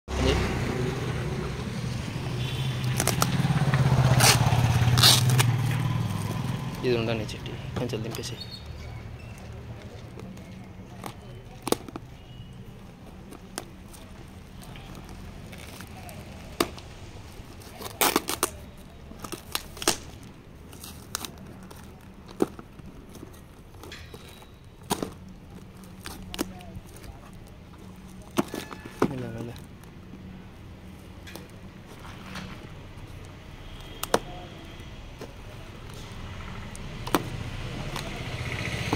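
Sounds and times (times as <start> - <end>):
packing tape ripping: 2.8 - 6.8, 13.3 - 22.4.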